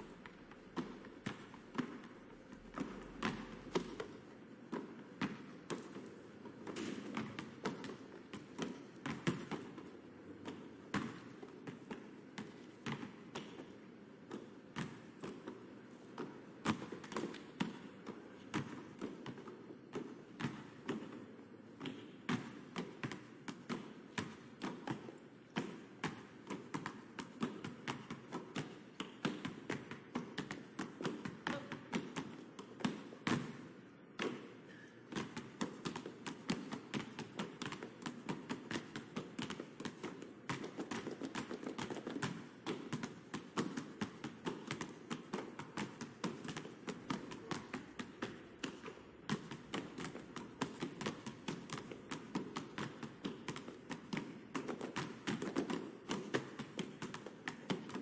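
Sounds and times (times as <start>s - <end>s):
basketballs bouncing on pavement: 21.8s - 33.6s, 35.2s - 58.0s.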